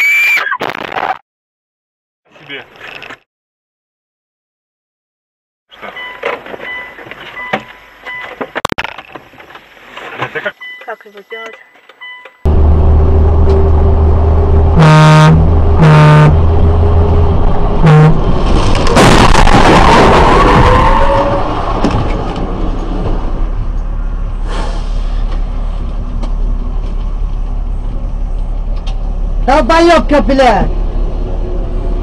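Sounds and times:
road noise: 2.3s - 3.2s, 5.7s - 32.0s
engine drone: 12.5s - 32.0s
car horn blaring: 14.7s - 16.4s, 17.8s - 18.2s
car crash: 18.3s - 23.4s.

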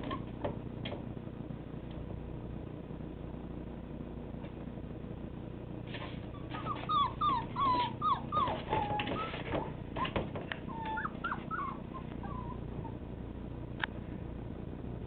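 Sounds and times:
puppies whimpering and whining: 6.0s - 13.1s.

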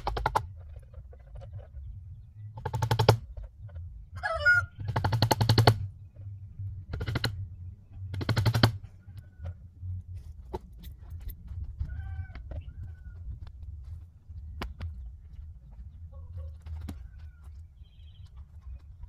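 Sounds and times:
rapid even clicking: 0.0s - 0.6s, 2.6s - 3.4s, 4.8s - 5.9s, 6.9s - 7.4s, 8.1s - 8.8s
faint chicken clucks: 3.2s - 5.2s, 8.8s - 19.0s
chicken call: 4.2s - 4.8s.

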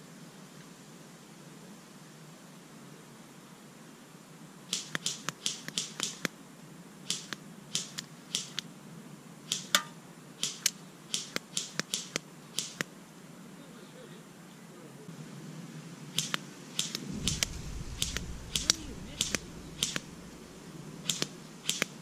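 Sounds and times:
faint steady hiss: 0.0s - 22.0s
sharp short clicks: 4.7s - 6.3s, 7.1s - 8.7s, 9.5s - 12.9s, 16.2s - 22.0s.

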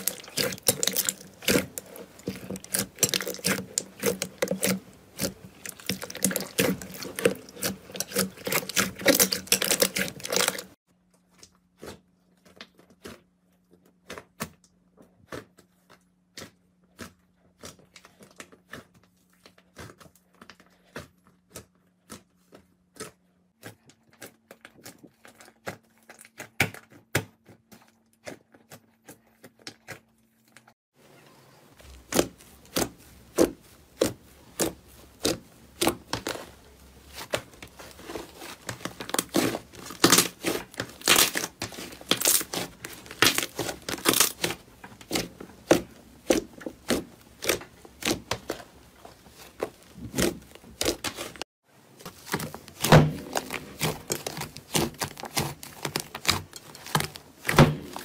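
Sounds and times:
slime crackling and tearing: 0.0s - 10.8s, 31.8s - 51.4s, 52.0s - 58.0s
slime squishing and popping: 0.0s - 10.8s, 31.9s - 48.7s, 52.1s - 58.0s.

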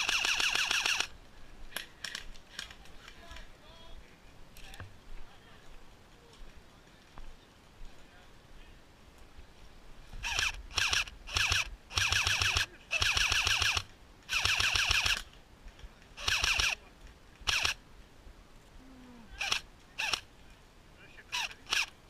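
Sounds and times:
airsoft rifle full-auto bursts: 0.0s - 1.2s, 10.2s - 15.3s, 16.2s - 16.8s, 17.4s - 17.8s, 19.4s - 20.2s, 21.3s - 22.0s.

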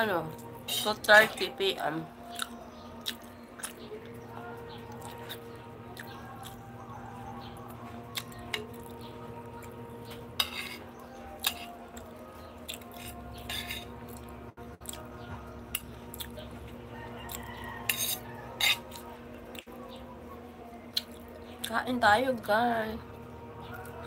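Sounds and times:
metal spoon scraping a plate: 10.3s - 11.9s, 12.7s - 14.2s, 17.6s - 19.1s.

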